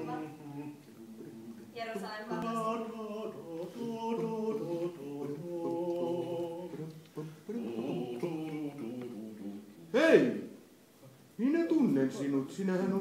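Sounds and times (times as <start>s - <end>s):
person singing unaccompanied: 0.0s - 10.0s.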